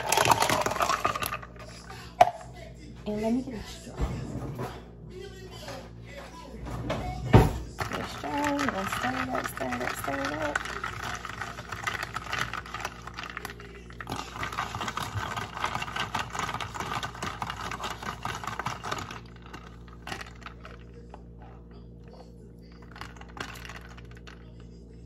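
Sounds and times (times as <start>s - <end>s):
ice cubes clinking in cup: 0.0s - 1.6s, 7.8s - 21.1s, 22.8s - 24.6s.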